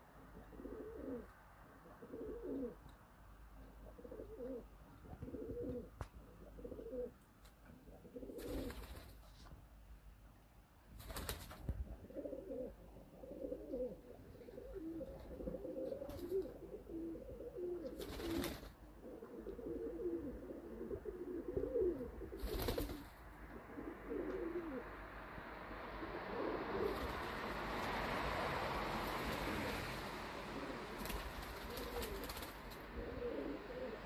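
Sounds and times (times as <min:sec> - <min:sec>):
pigeons cooing: 0:00.4 - 0:02.8, 0:03.8 - 0:07.2, 0:07.8 - 0:08.9, 0:12.0 - 0:23.0, 0:23.6 - 0:25.0, 0:26.0 - 0:27.2, 0:29.3 - 0:34.0.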